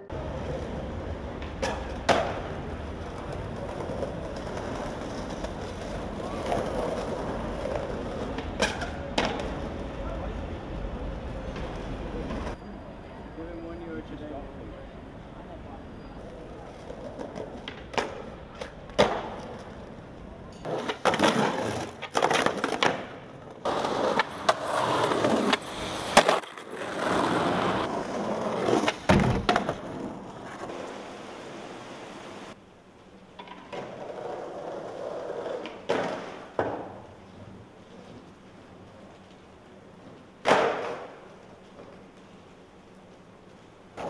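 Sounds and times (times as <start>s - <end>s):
skateboard wheels rolling on paving: 0.0s - 12.6s, 15.6s - 44.0s
skateboard scraping along stone: 0.2s - 10.0s, 16.2s - 32.6s, 33.7s - 36.5s
skateboard clacks: 0.2s - 10.1s, 16.7s - 20.0s, 20.6s - 30.8s, 33.4s - 37.1s, 40.2s - 42.2s.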